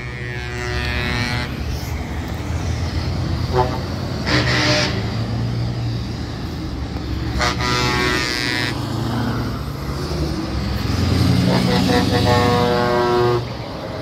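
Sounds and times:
truck horn toot: 0.0 - 1.7, 3.4 - 5.2, 7.3 - 8.8, 11.4 - 13.6
long horn blast: 0.0 - 1.9, 3.4 - 5.3, 7.2 - 9.0, 11.1 - 13.7
trucks driving past: 0.0 - 14.0.

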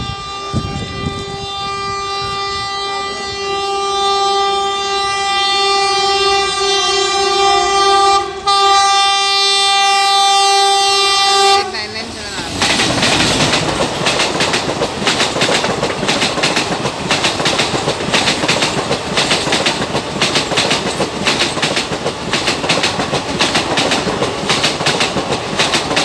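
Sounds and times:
locomotive air horn blast: 0.0 - 12.0.

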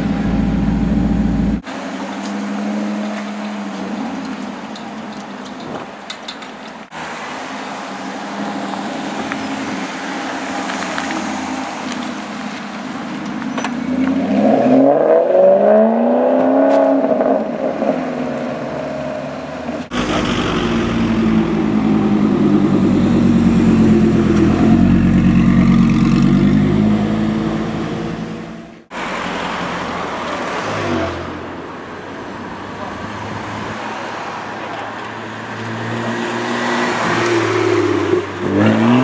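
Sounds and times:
car engine running loud: 19.8 - 28.9
sports car engine accelerating: 19.9 - 28.8.

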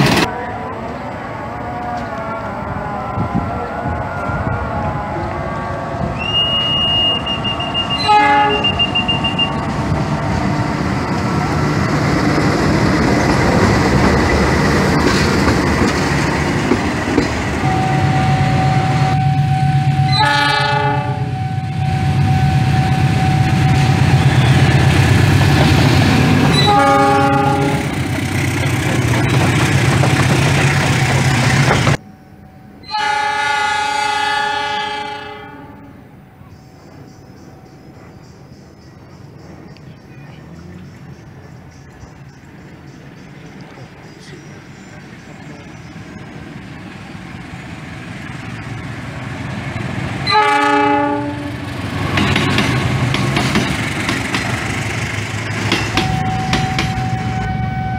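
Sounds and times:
train running by: 0.0 - 57.9
locomotive air horn blasts: 5.1 - 9.7, 17.6 - 24.9, 26.5 - 28.0, 32.9 - 36.0, 50.2 - 51.6, 56.0 - 57.9
diesel engine: 39.5 - 57.9.

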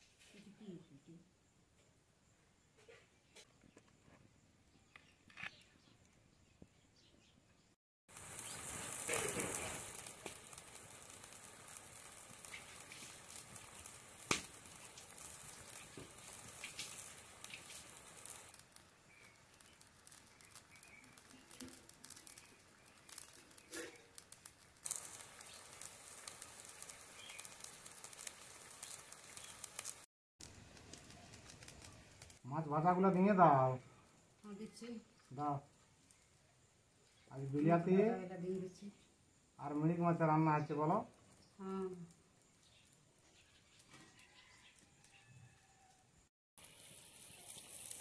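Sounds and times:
curry boiling and spitting: 8.1 - 32.5, 46.6 - 48.0.

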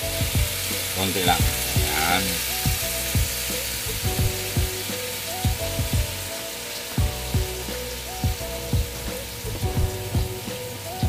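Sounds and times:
music with thumping beat: 0.0 - 11.0
vegetables sizzling in a frying pan: 0.0 - 11.0.

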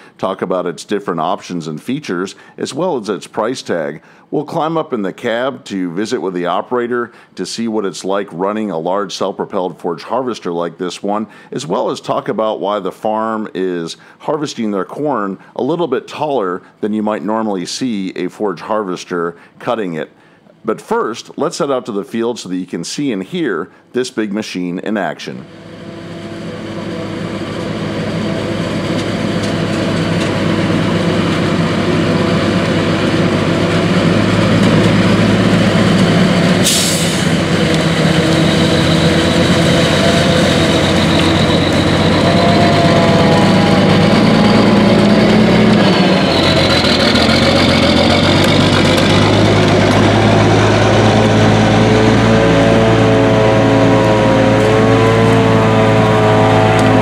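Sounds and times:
truck engine: 25.4 - 57.0
short hiss: 36.6 - 37.3.

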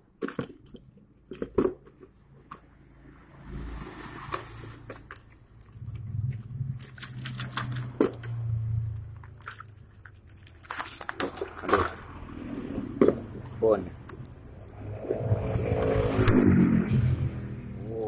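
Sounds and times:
plastic bag crinkling: 9.2 - 12.0
low hum: 11.8 - 18.0.

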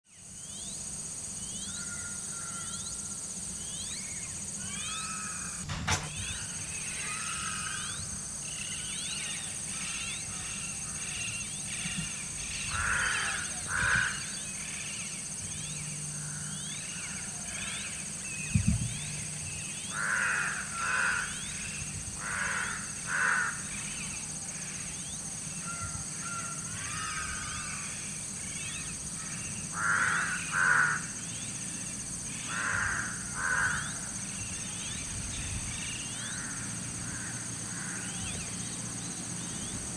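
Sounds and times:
small birds chirping: 0.0 - 39.9
crow cawing: 1.8 - 2.8, 4.7 - 5.6, 6.3 - 8.0, 12.6 - 14.3, 19.9 - 21.4, 22.2 - 23.7, 25.7 - 28.0, 29.2 - 31.1, 32.5 - 34.1, 36.3 - 38.3
sharp knock: 5.6 - 6.4.

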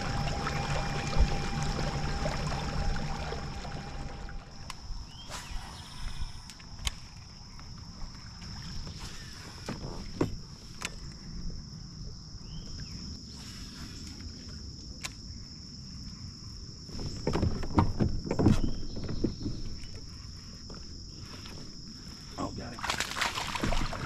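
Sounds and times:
insects buzzing: 0.0 - 24.0
knocks and rustling: 16.9 - 20.1.

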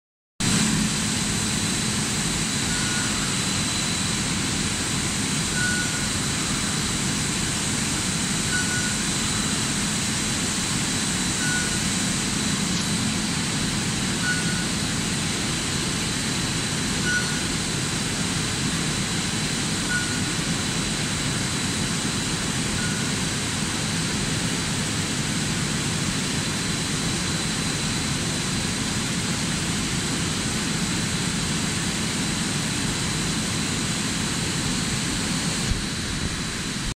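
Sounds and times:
machinery running with hum and whine: 0.4 - 36.9
short beep-like tone: 2.5 - 4.1, 5.5 - 6.7, 8.4 - 9.6, 11.4 - 12.1, 14.2 - 14.9, 17.0 - 17.5, 19.8 - 20.4, 22.7 - 23.2.

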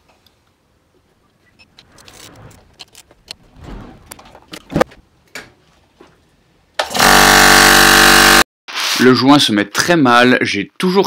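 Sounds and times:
air compressor running: 6.8 - 8.4.

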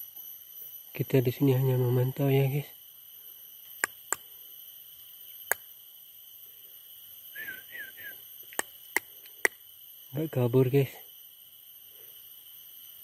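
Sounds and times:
high insect drone: 0.0 - 13.0
short whistled chirps: 7.3 - 9.0.

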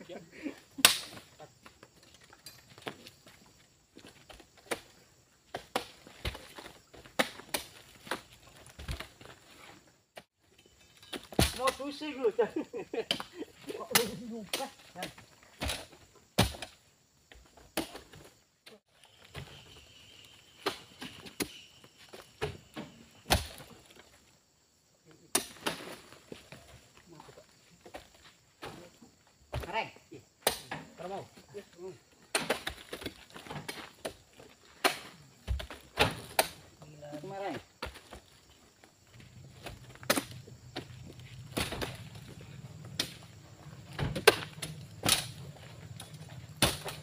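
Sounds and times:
fruit bunches knocking and thudding: 34.8 - 38.5, 39.5 - 47.0.

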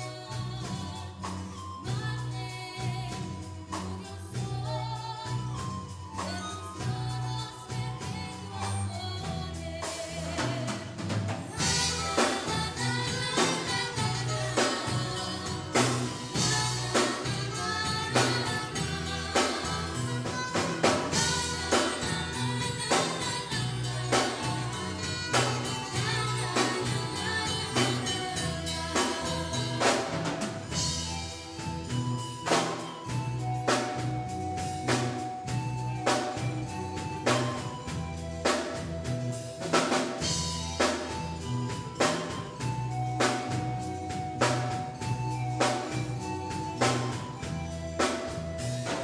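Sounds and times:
drum kit beat: 0.0 - 49.0
pulsing bass line: 0.0 - 49.0
person singing: 6.2 - 31.5
saxophone melody: 9.4 - 49.0.

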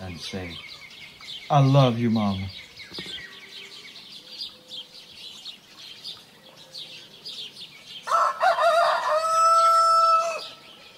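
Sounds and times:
small birds chirping: 0.0 - 10.9
rooster crowing: 8.1 - 10.6.

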